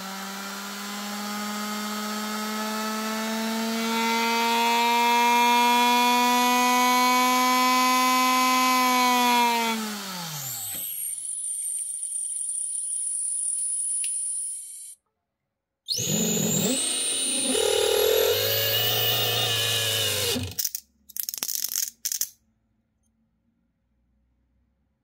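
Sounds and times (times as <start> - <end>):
electric motor whining: 15.9 - 20.6.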